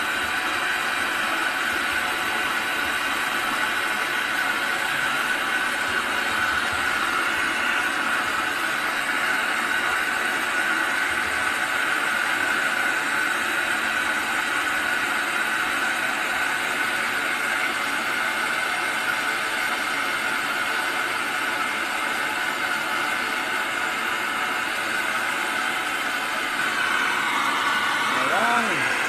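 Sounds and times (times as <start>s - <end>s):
gas torch hissing: 24.2s - 29.0s.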